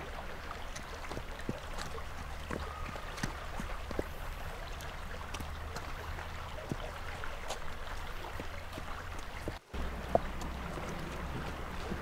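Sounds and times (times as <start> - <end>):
horse hooves on gravel: 0.0 - 12.0
footsteps on gravel: 0.6 - 12.0
steady low rumble: 8.5 - 12.0.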